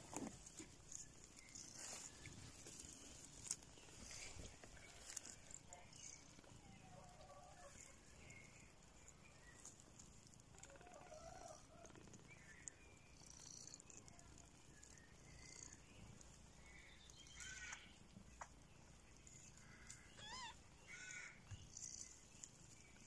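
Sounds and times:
faint animal chirps: 3.9 - 18.0, 19.2 - 22.3.

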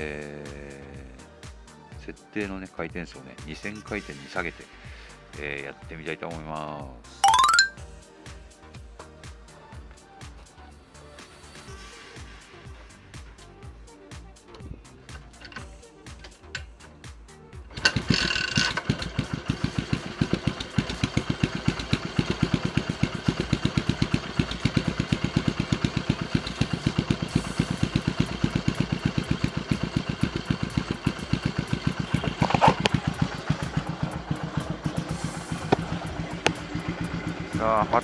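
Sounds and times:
motorcycle engine kick-started: 17.7 - 38.0
single-cylinder engine idling: 17.7 - 38.0.

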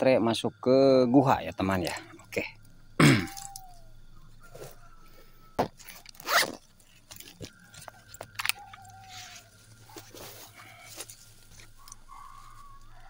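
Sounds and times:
zip-like rasp: 5.9 - 6.6.

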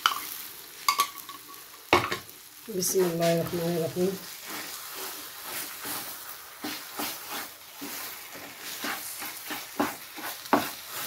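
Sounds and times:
frying sizzle: 0.0 - 11.0
wooden spoon scraping a pan: 2.8 - 11.0.

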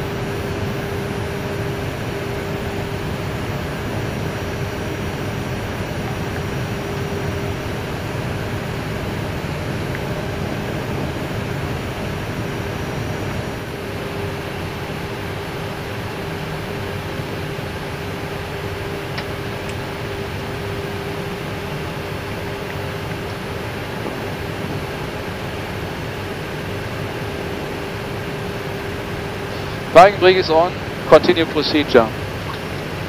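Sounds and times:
jet engines idling hiss: 0.0 - 33.0
steady hum: 0.0 - 33.0.

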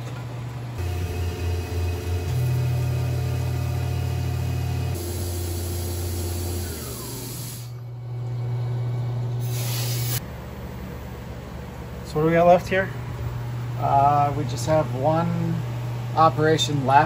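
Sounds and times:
milling machine motor hum: 0.0 - 17.0
coolant spray hiss: 5.0 - 7.7, 9.4 - 10.2.

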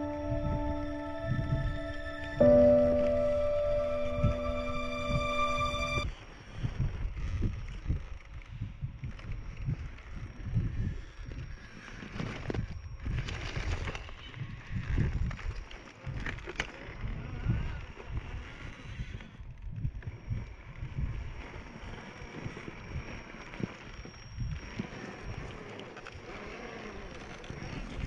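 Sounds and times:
small electric motor and gears: 6.5 - 28.0.

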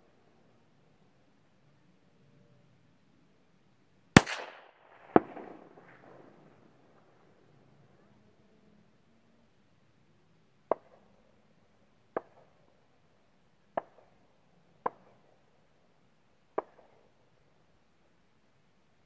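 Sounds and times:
distant gunshots with echo: 4.2 - 7.3.

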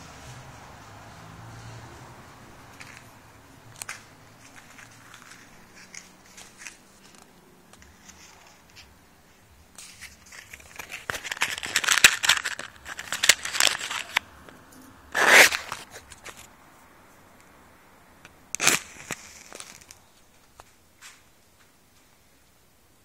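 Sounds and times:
rustling and crackling: 0.0 - 16.6, 18.2 - 22.6.

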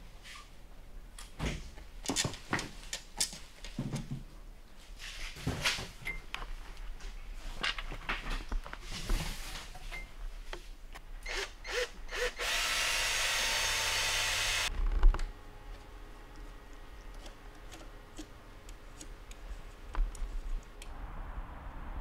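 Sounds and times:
power tool running: 11.3 - 14.7
hand tool ticking and tapping: 16.3 - 20.8.

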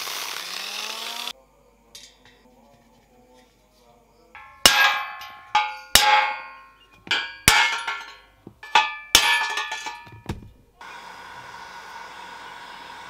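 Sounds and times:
steel rod knocking on metal: 4.4 - 10.6.

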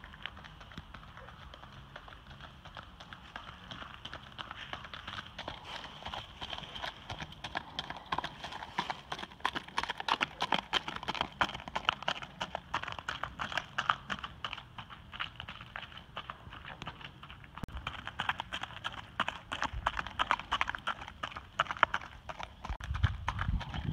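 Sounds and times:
hoofbeats on gravel: 0.0 - 23.9.

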